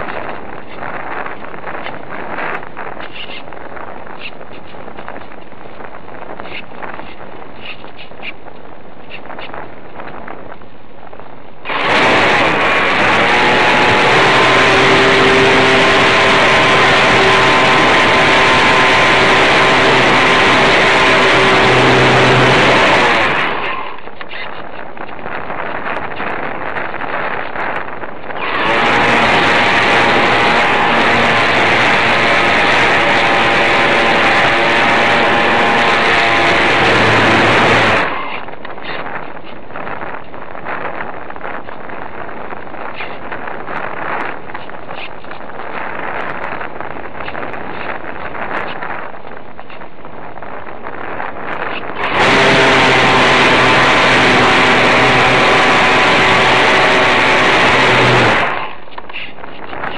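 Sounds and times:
loud air rush: 0:11.6 - 0:24.2, 0:28.4 - 0:38.5, 0:51.9 - 0:59.4
model plane motor whine: 0:11.7 - 0:24.0, 0:28.4 - 0:38.4, 0:52.0 - 0:58.8.

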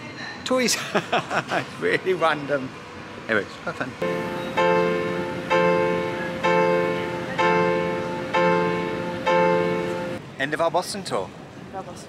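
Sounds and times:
piano chords ringing: 0:04.0 - 0:10.2.

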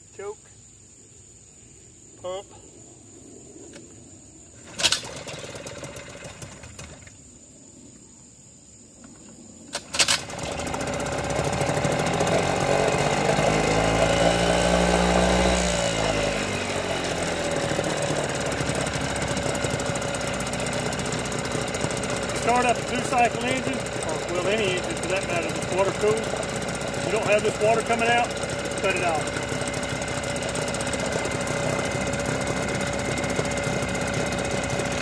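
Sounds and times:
starter cord pull: 0:04.7 - 0:05.9, 0:09.7 - 0:11.9
outboard motor running: 0:10.2 - 0:35.0.

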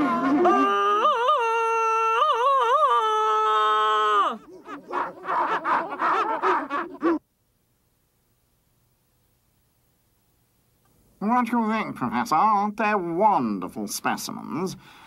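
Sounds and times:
man's jungle yell: 0:00.0 - 0:07.2.

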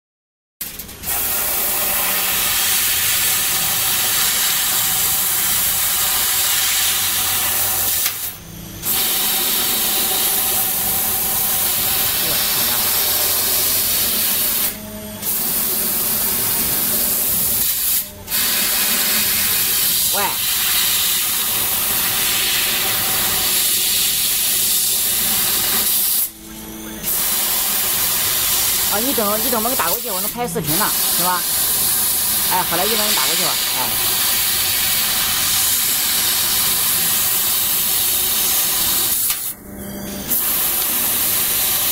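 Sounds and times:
hiss of gas jet: 0:01.0 - 0:08.1, 0:17.2 - 0:26.3.

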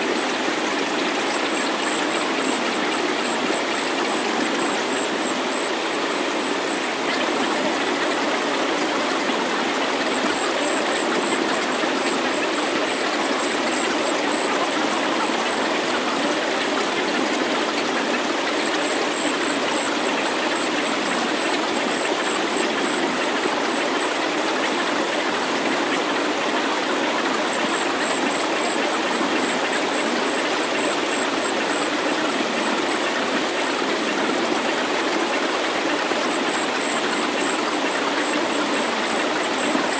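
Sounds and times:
faint pulsing high tone: 0:30.0 - 0:39.9
synthesized hiss: 0:31.2 - 0:39.9.

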